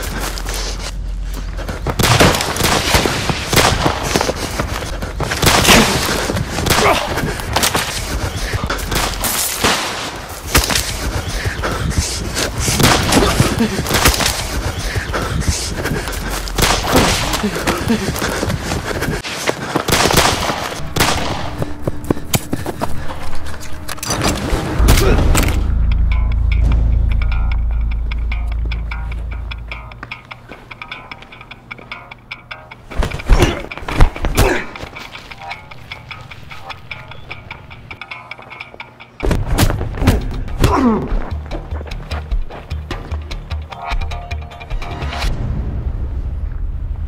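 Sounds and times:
deep bass drone film music: 0.0 - 9.6, 11.0 - 19.2, 20.8 - 33.9, 39.8 - 47.0
gunshots and impacts: 2.0 - 4.4, 5.4 - 7.9, 12.8 - 14.4, 16.6 - 17.4, 19.9 - 21.6.

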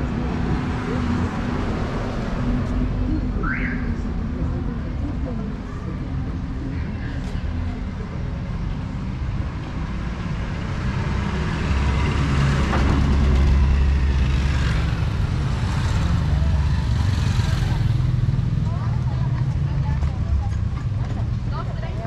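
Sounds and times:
vehicle engines running: 0.0 - 22.0
motorcycle passing by: 10.9 - 19.0.

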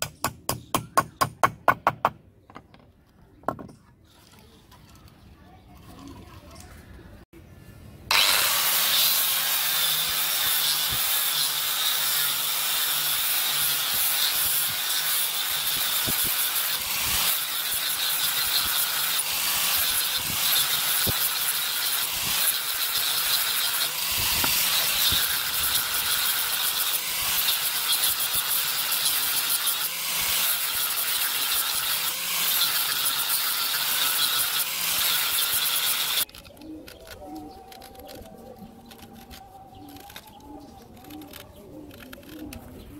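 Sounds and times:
angle grinder sanding wood: 8.1 - 36.3.

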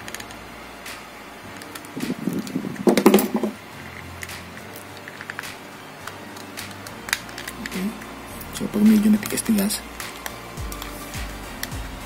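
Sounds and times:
rubbing and handling noise: 0.0 - 11.8.

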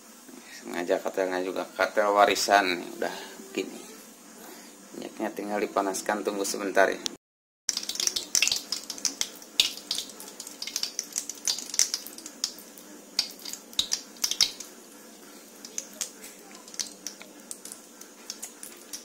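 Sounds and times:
hot oil crackling and popping: 7.7 - 19.0.

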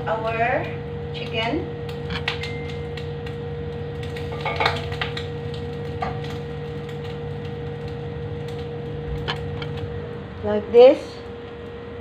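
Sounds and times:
kitchen hum: 0.0 - 12.0
metal utensil clinking on pots: 4.3 - 5.0.

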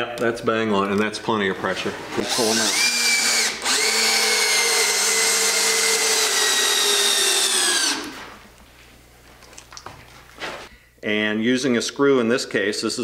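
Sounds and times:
cordless drill driving screw: 2.2 - 8.2.

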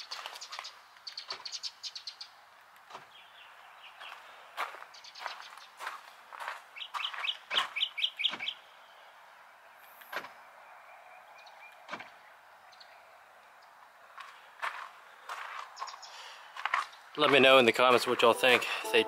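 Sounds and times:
bird chirping: 0.0 - 2.4, 6.8 - 9.1, 10.4 - 13.8, 15.7 - 17.4.

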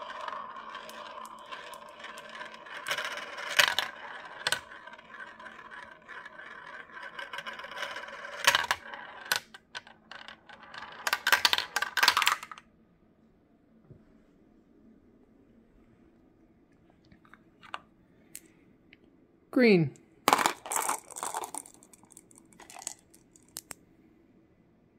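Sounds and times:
marbles clicking and clattering: 0.0 - 12.6, 20.3 - 23.8
marbles rolling on plastic track: 0.0 - 12.6, 20.3 - 23.8.

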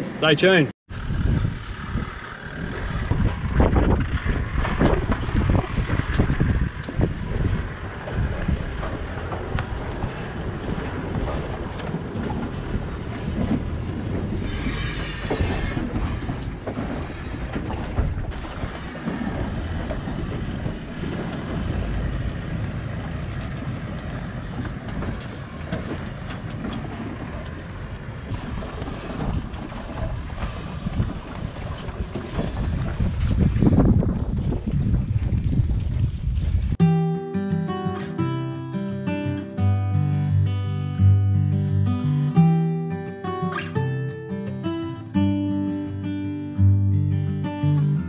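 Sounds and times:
vehicle engine running: 0.9 - 36.8
tyres grinding over rock and sand: 2.1 - 36.7
knocks and rattles from caravan: 2.6 - 36.8.

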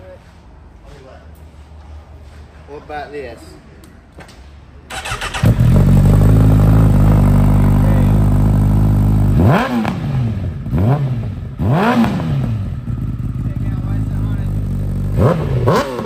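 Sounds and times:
motorcycle engine revving: 4.9 - 16.0
motorcycle engine starting and idling: 4.9 - 16.0.

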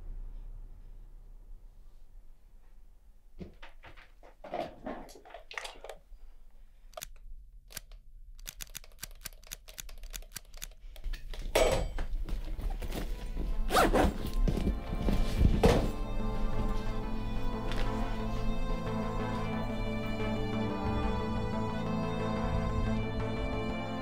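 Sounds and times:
film score music: 12.8 - 24.0.

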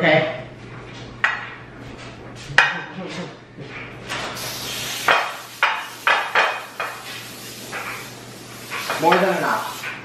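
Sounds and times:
aerosol spray hissing: 4.4 - 10.0.

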